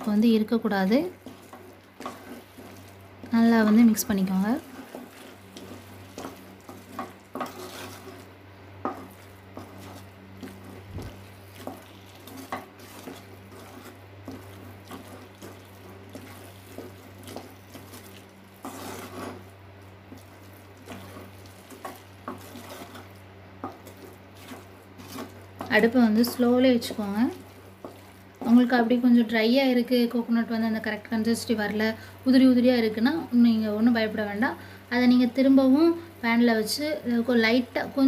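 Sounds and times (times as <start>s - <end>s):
steady low hum: 0.0s - 38.0s
spoon scraping a pan: 4.6s - 28.7s.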